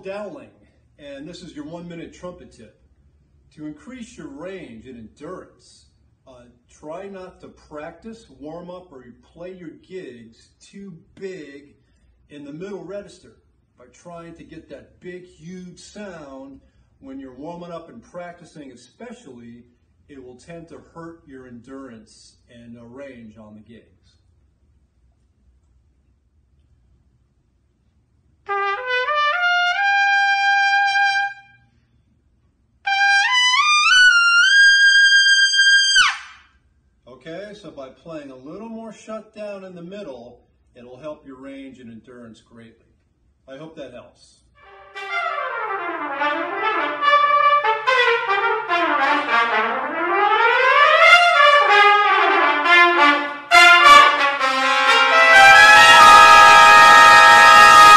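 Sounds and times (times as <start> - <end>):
solo trumpet: 28.4 - 31.8, 32.8 - 36.5, 44.6 - 57.9.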